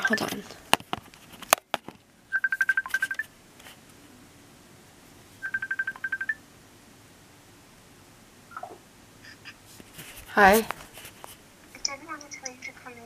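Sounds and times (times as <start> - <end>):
smartphone ringtone beeps: 2.3 - 3.3, 5.4 - 6.4.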